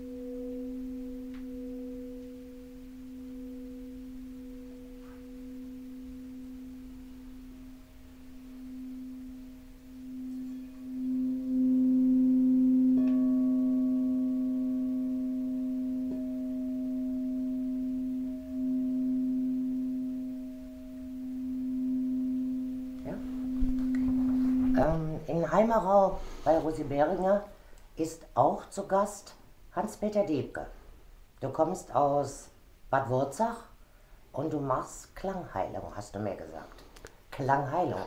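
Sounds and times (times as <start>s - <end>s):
crystal singing bowl ringing: 0.0s - 27.7s.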